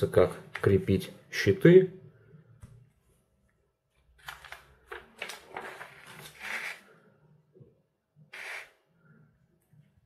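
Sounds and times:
paper pages rustling: 4.2s - 6.9s.

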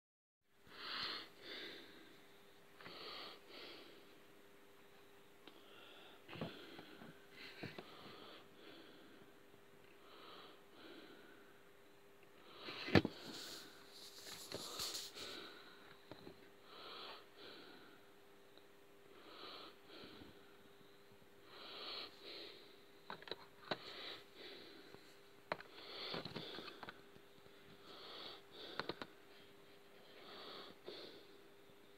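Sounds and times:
faint steady hum: 0.5s - 31.9s
person breathing and sniffing: 12.5s - 16.0s, 21.5s - 22.7s, 23.6s - 27.0s, 27.8s - 31.4s.

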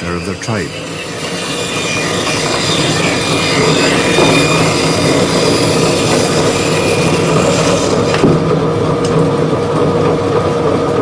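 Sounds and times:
bandsaw cutting wood: 0.0s - 8.4s.

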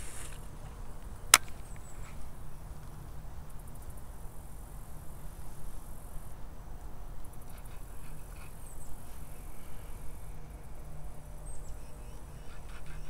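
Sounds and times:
insects buzzing: 0.0s - 13.0s.

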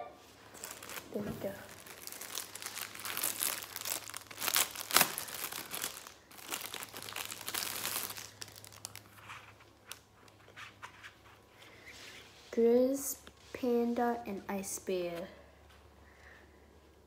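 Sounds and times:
plastic wrapper crinkling: 0.4s - 10.5s.

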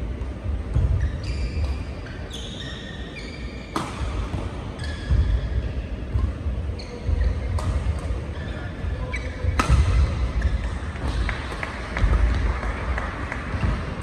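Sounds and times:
shoes squeaking on court: 0.3s - 12.4s
racket hitting shuttlecock: 3.7s - 5.3s, 7.4s - 8.2s, 9.2s - 14.0s.

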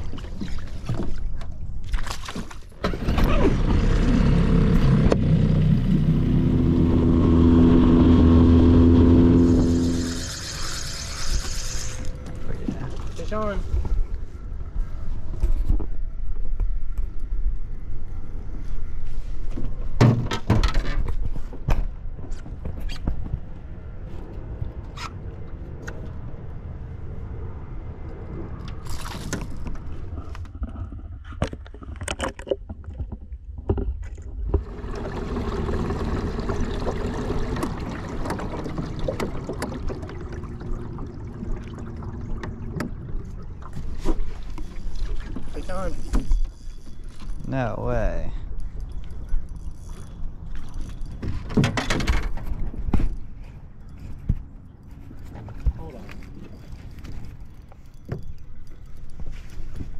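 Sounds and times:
constant low rumble: 0.0s - 59.9s
steady low hum: 34.6s - 51.2s.

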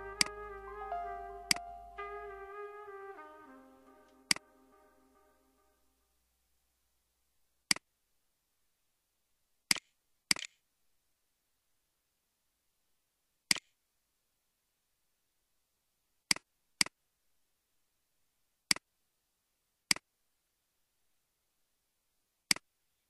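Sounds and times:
brass background music: 0.0s - 6.0s.

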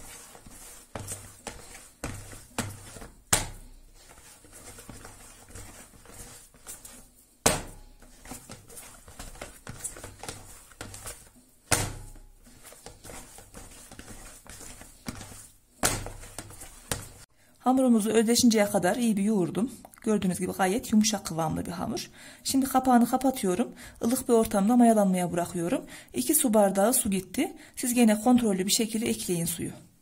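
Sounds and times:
dough thumping into bowl: 0.0s - 17.2s
dough squishing and rustling: 0.0s - 17.3s.

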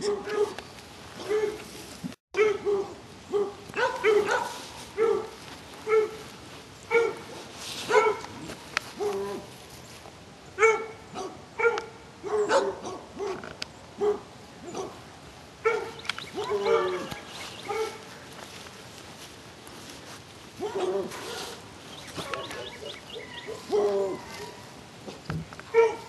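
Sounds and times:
dogs barking: 0.0s - 0.6s, 1.2s - 1.6s, 2.4s - 6.3s, 6.9s - 9.5s, 10.6s - 13.4s, 14.0s - 15.0s, 15.6s - 18.2s, 20.6s - 24.7s, 25.7s - 26.0s.

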